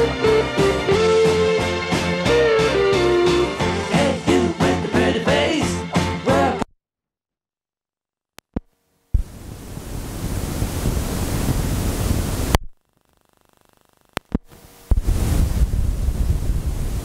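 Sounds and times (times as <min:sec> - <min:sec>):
cassette tape hiss: 0:08.6 - 0:17.0
sharp clicks: 0:14.1 - 0:15.0.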